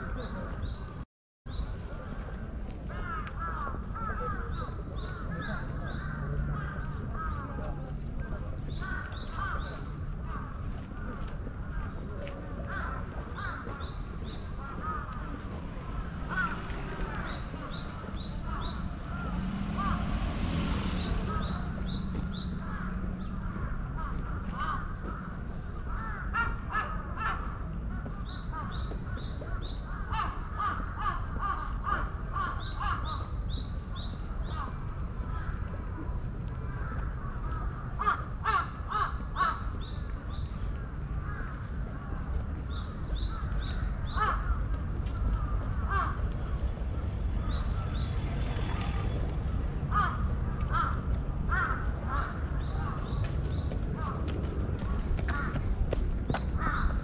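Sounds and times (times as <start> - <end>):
crows cawing: 2.9 - 4.6, 8.8 - 11.1, 12.6 - 20.0, 21.2 - 27.7, 36.8 - 39.8, 43.2 - 46.3, 49.9 - 53.2, 54.0 - 57.0.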